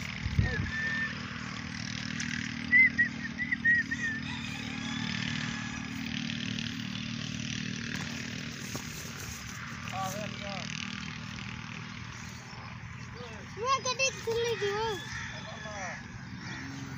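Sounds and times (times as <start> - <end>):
engine running: 0.0 - 16.9.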